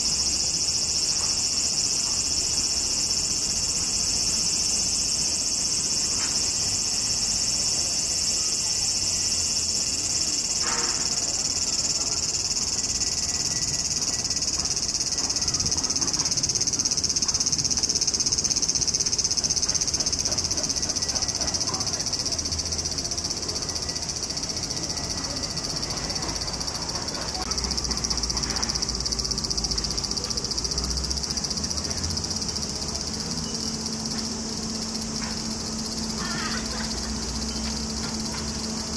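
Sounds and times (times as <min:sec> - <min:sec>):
cicadas buzzing: 0:00.0 - 0:38.9.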